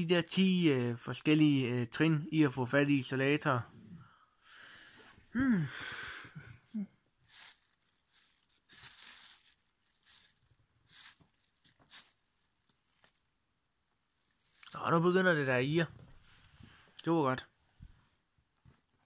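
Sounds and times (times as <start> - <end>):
breathy vocal sound: 3.9 - 6.9
plastic sheeting crinkling: 7.2 - 15.7.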